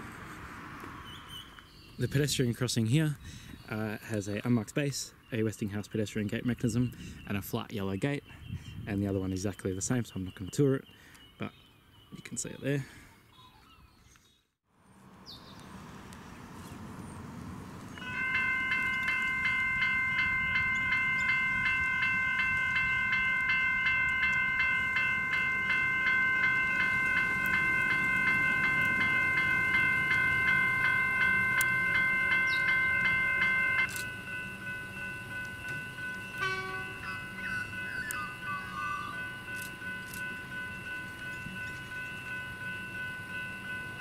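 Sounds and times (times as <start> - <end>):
level crossing bells ringing: 18.0 - 44.0.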